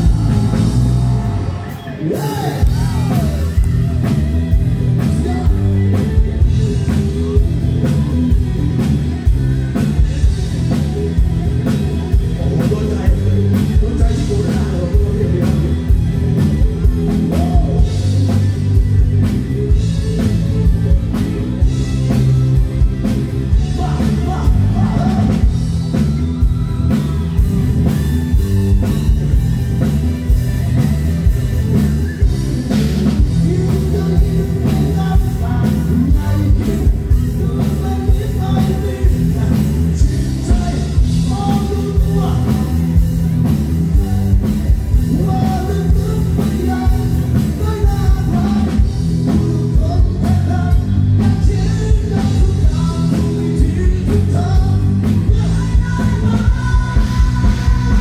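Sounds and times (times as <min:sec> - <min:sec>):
man singing: 0:00.0 - 0:03.9, 0:04.9 - 0:08.9, 0:09.7 - 0:16.1, 0:17.0 - 0:18.6, 0:23.5 - 0:25.6, 0:32.6 - 0:58.0
drum kit: 0:00.0 - 0:58.0
electric bass: 0:00.0 - 0:58.0
electric guitar: 0:00.0 - 0:58.0
keyboard: 0:00.0 - 0:58.0.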